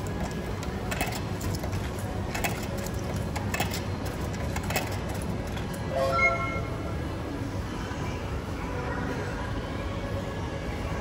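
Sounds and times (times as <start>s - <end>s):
vending machine low hum: 0.0s - 11.0s.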